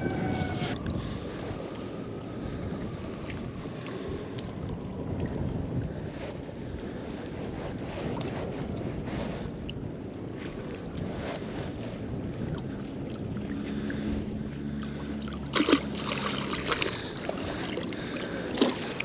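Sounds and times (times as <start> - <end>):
lapping river water: 0.0 - 19.0
wind on microphone: 0.0 - 19.0
water trickling off rope: 10.6 - 19.0.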